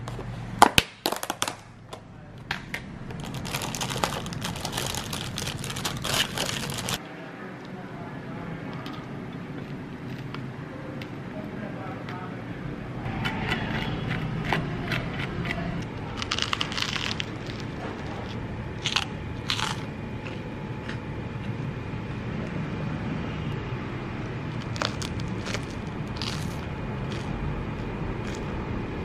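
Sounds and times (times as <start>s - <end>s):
crunchy bites and chewing: 3.1s - 7.0s, 13.2s - 21.7s, 24.5s - 28.7s.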